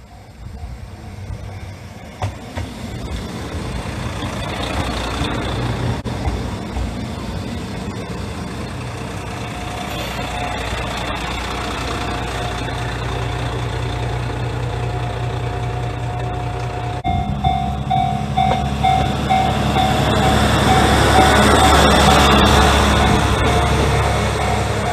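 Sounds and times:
diesel railcar engine: 0.0s - 24.9s
railcar rolling past: 0.0s - 24.9s
level-crossing alarm bell ringing: 7.0s - 13.5s, 17.0s - 24.9s.

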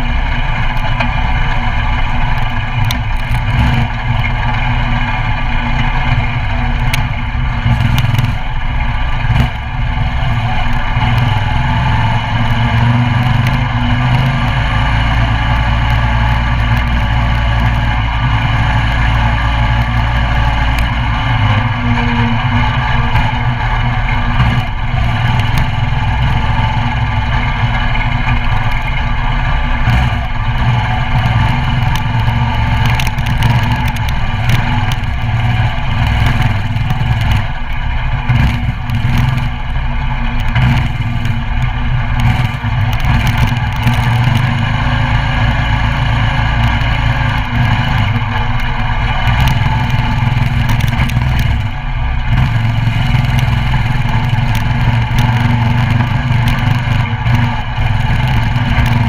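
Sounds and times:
mini bike engine running: 0.0s - 59.0s.

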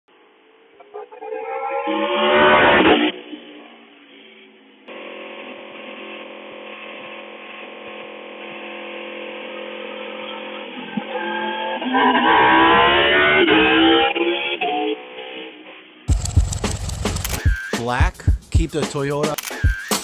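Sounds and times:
motorcycle engine accelerating: 16.1s - 17.6s.

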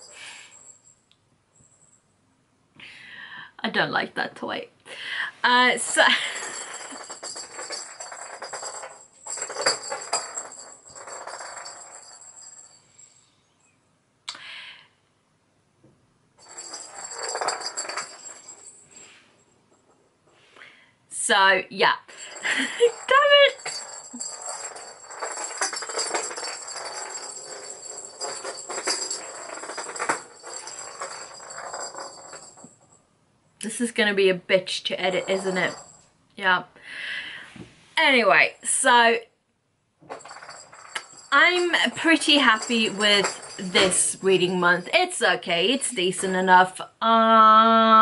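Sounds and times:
jingle-bell ball rattling: 5.8s - 13.3s, 16.4s - 19.2s, 22.2s - 33.0s, 35.0s - 36.0s, 40.1s - 46.2s.

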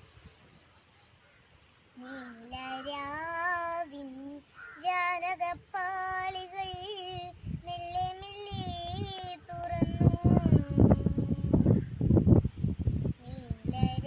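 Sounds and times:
girl singing solo: 2.0s - 11.7s, 13.1s - 14.0s.

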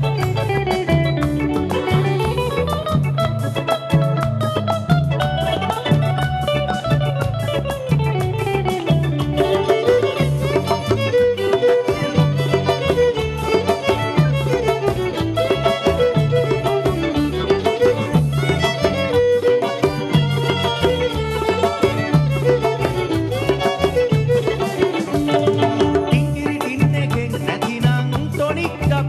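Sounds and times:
violin melody: 0.0s - 26.5s
hand drum beat: 0.0s - 29.0s
plucked guitar: 0.0s - 29.0s.

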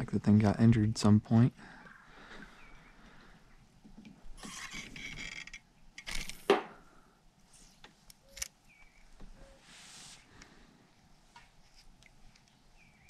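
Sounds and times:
fishing reel clicking: 4.4s - 6.4s
fishing reel gears whirring: 4.4s - 6.4s.

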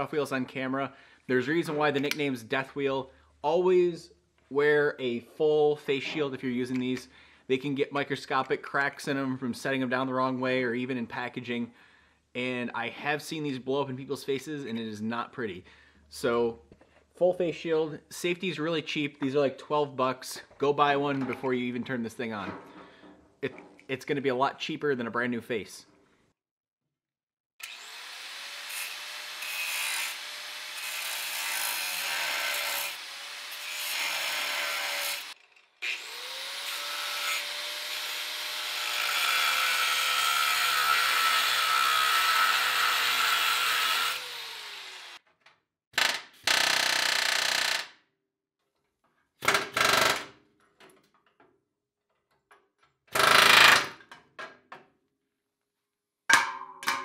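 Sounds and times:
angle grinder cutting steel: 27.6s - 45.2s.

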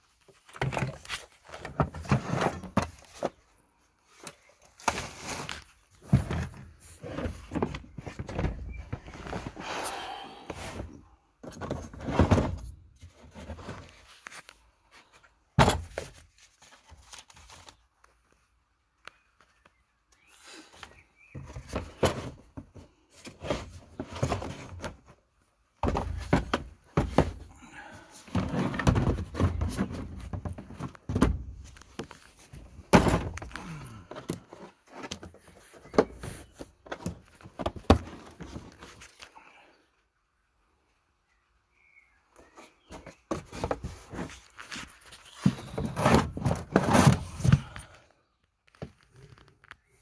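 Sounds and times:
plastic cases knocking and scraping: 0.3s - 3.6s, 4.2s - 9.7s, 10.4s - 14.4s, 15.1s - 17.8s, 20.9s - 39.3s, 42.4s - 48.0s.

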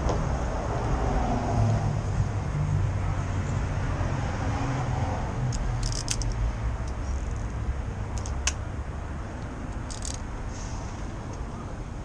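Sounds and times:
metallic tool clicks and taps: 5.5s - 8.6s, 9.4s - 10.2s.

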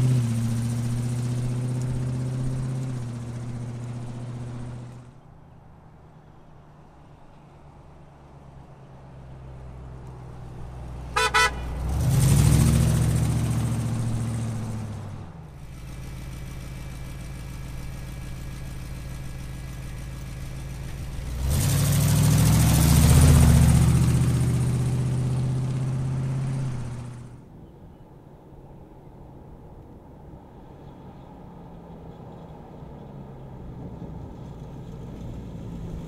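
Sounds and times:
car engine revving: 0.0s - 5.1s, 10.4s - 27.4s
vehicle horn toots: 11.1s - 11.8s.

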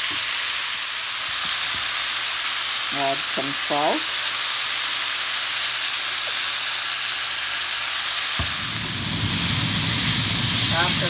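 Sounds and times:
vegetables sizzling in frying pan: 0.0s - 11.0s
low rumble: 8.4s - 11.0s.

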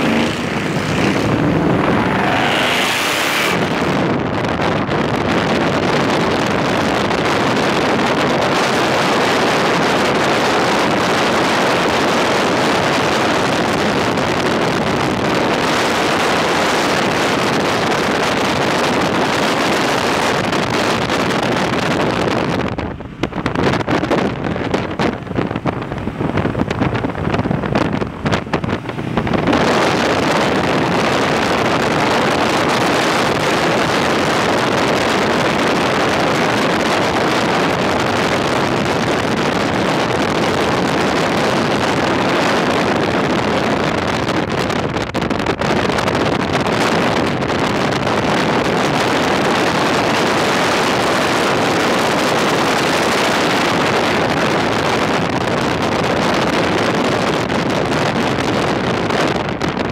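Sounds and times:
low uneven rumble: 0.0s - 5.2s
road and engine noise: 0.0s - 59.9s
wind rushing over microphone: 0.0s - 59.9s.

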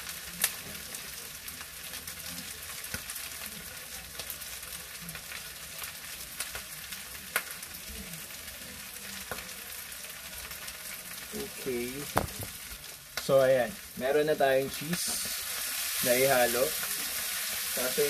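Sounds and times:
food sizzling in a frying pan: 0.0s - 18.0s.

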